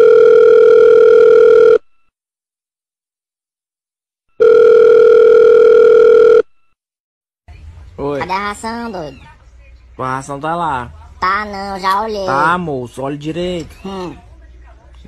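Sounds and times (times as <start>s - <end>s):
telephone ringback tone: 0.0s - 1.9s, 4.4s - 6.5s.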